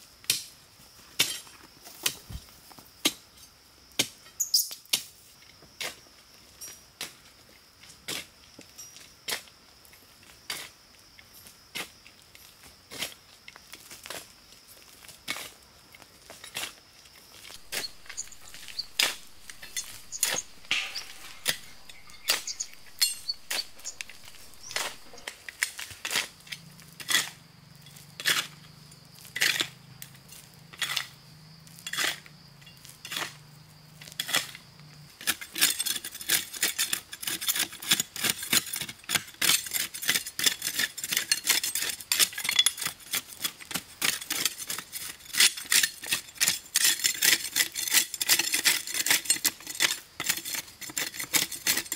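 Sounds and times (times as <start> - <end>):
short scraping strokes: 17.5 - 25.4.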